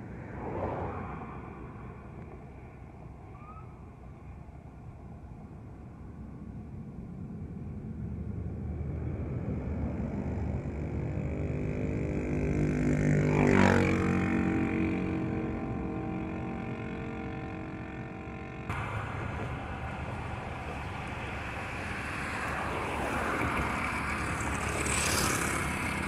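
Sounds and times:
vehicle engine passing by: 0:00.0 - 0:02.1, 0:08.9 - 0:26.0
steady low rumble: 0:00.0 - 0:12.2, 0:15.4 - 0:22.9.

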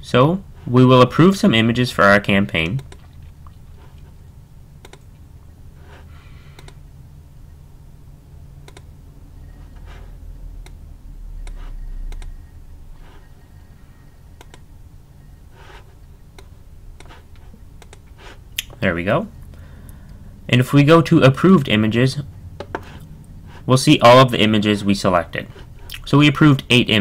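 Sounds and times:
low steady hum: 0:00.0 - 0:27.0
computer mouse clicking: 0:04.8 - 0:05.1, 0:06.5 - 0:06.8, 0:08.6 - 0:08.9, 0:11.4 - 0:12.3, 0:14.4 - 0:14.6, 0:17.8 - 0:18.1.

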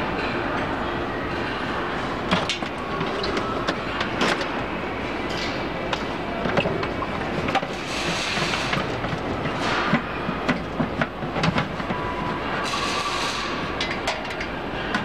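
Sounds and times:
steady mechanical rumble: 0:00.0 - 0:15.0
plastic tubs knocking and clattering: 0:05.9 - 0:15.0.

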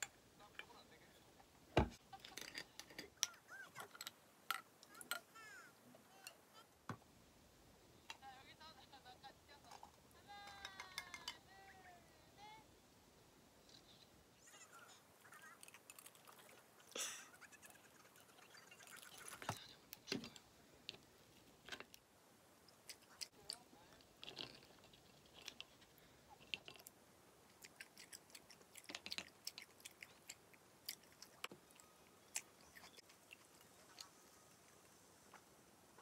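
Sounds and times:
chewing: 0:15.2 - 0:19.6, 0:22.7 - 0:35.4.

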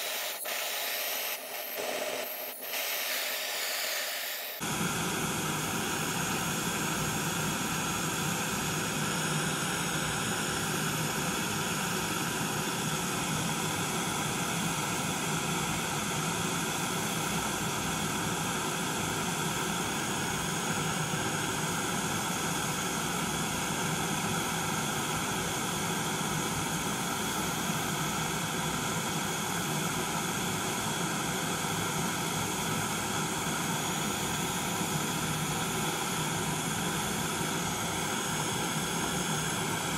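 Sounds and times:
gas torch flame rushing: 0:00.0 - 0:06.9.

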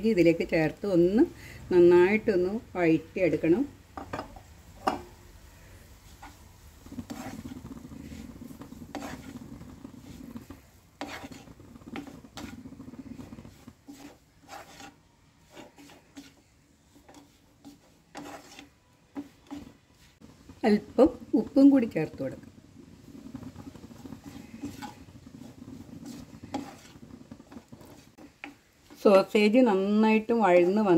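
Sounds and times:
spatula scraping frying pan: 0:00.1 - 0:30.9
spatula tapping pan: 0:03.9 - 0:05.2, 0:08.5 - 0:19.8, 0:23.2 - 0:29.5.

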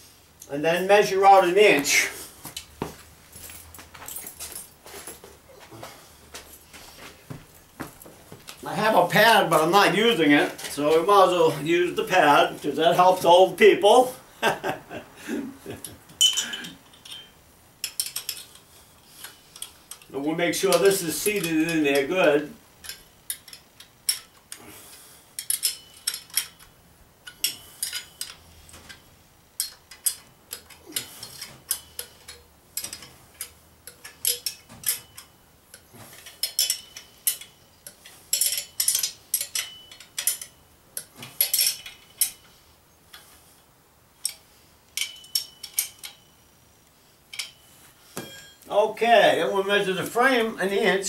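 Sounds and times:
metal clicks of hand tools: 0:15.8 - 0:20.1, 0:22.8 - 0:42.5, 0:44.2 - 0:46.3, 0:47.3 - 0:47.6.

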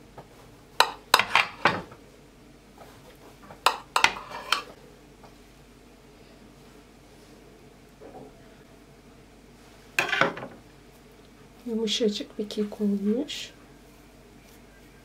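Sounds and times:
knife clinking on ceramic plate: 0:03.7 - 0:04.7.

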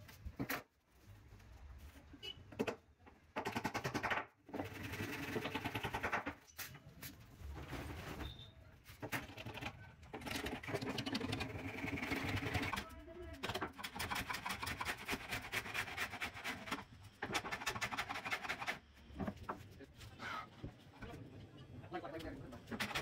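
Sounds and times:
saw cutting plywood: 0:13.8 - 0:18.8.

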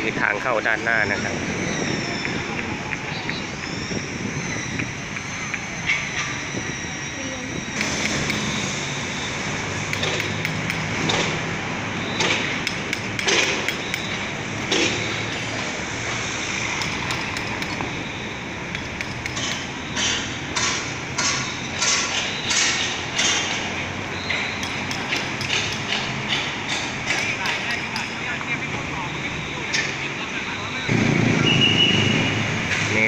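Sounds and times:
traffic noise: 0:00.0 - 0:33.0
sharp knocks: 0:09.9 - 0:11.4, 0:12.2 - 0:15.1, 0:18.7 - 0:28.2.

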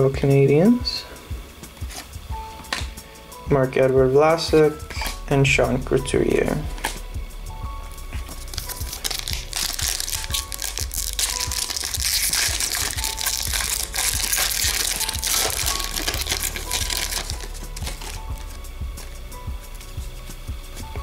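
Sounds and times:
faint background music: 0:00.0 - 0:21.0
wrapper crinkling and tearing: 0:08.4 - 0:18.6.

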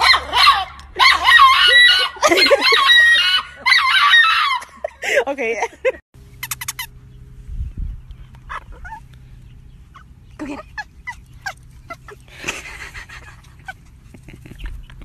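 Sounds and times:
small dog yapping: 0:00.0 - 0:04.6, 0:08.4 - 0:09.1, 0:09.9 - 0:12.2.

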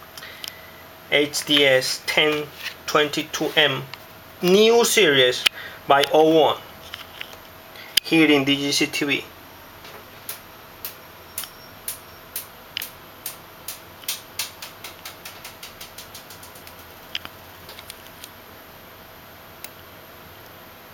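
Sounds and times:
faint steady hum: 0:00.0 - 0:20.9
sharp light clicks: 0:10.3 - 0:18.3.

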